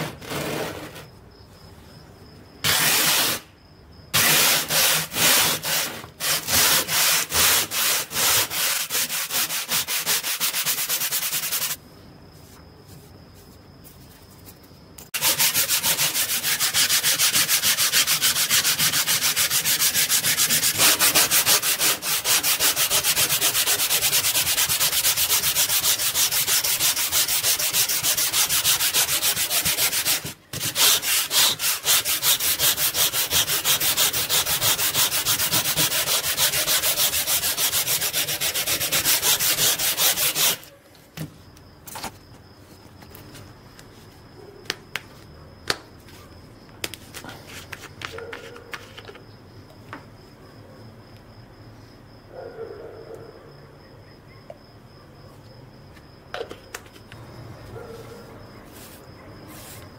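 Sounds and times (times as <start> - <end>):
sandpaper scouring steel blade: 2.7 - 3.4, 4.2 - 11.8, 15.2 - 40.7.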